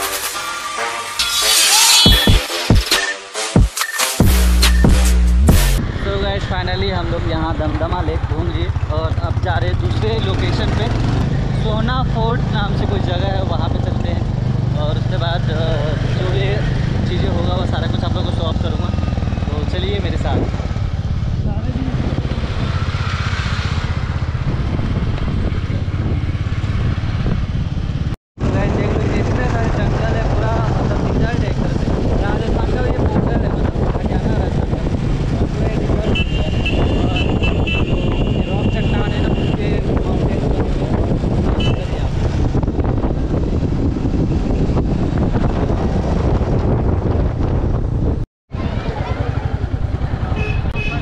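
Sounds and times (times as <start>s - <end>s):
road and air noise: 5.2s - 9.4s, 14.0s - 17.6s, 18.2s - 19.6s, 20.2s - 29.4s, 30.6s - 51.0s
motorcycle engine rumbling: 5.4s - 51.0s
wind buffeting microphone: 18.8s - 51.0s.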